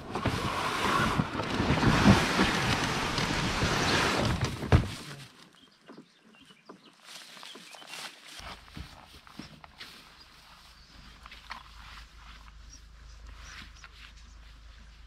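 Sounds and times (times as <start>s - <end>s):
canoe bump: 0.0s - 5.2s
canoe hull scraping through sand: 0.0s - 5.2s.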